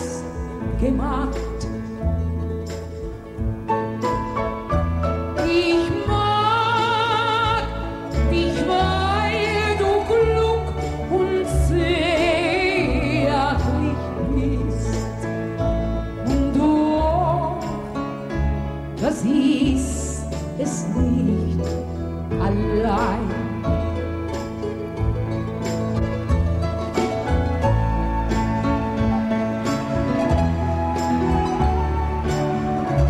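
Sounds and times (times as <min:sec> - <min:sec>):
bass line: 0:00.0 - 0:33.0.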